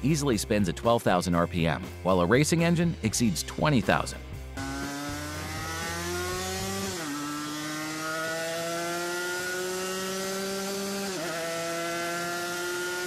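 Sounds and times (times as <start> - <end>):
two-stroke motorcycle engine accelerating: 4.6 - 13.0.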